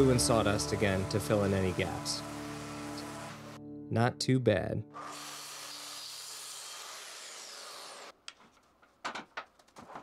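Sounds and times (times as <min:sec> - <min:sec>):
track saw cutting wood: 0:00.0 - 0:03.6, 0:05.0 - 0:08.1.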